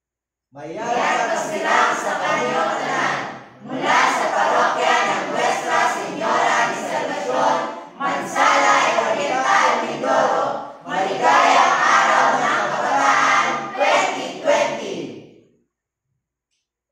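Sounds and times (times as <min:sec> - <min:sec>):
choir singing: 0:00.6 - 0:15.3.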